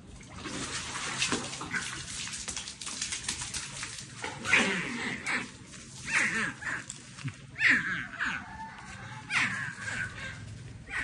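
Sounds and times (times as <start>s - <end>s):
animal calling: 7.6s - 11.0s.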